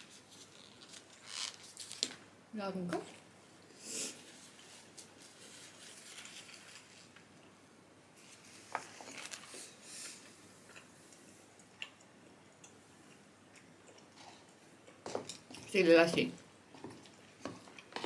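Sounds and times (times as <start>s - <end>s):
faint rustling and handling: 0.0s - 2.2s, 2.8s - 7.5s, 8.1s - 11.5s.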